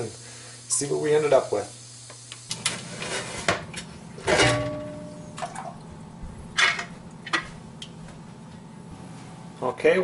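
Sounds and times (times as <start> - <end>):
metal lid clanks and knocks: 4.2 - 5.2.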